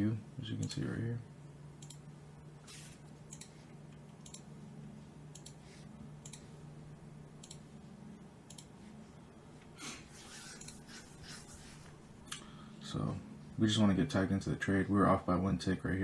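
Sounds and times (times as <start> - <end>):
computer mouse clicks: 1.8 - 2.0, 3.3 - 4.5, 5.3 - 5.6, 6.2 - 6.5, 7.4 - 7.6, 8.5 - 8.8, 10.4 - 10.9.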